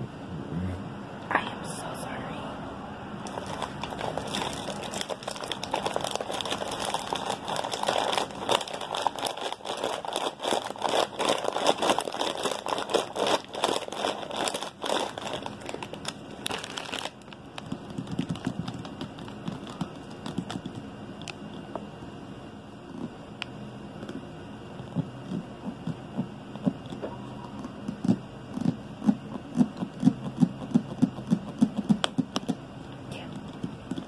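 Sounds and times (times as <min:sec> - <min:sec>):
snack bag crinkling: 0:03.2 - 0:21.6.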